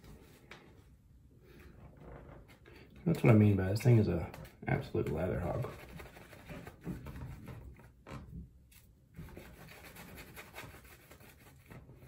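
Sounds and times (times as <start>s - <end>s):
shaving brush scratching through lather: 5.2s - 6.8s, 9.2s - 11.8s.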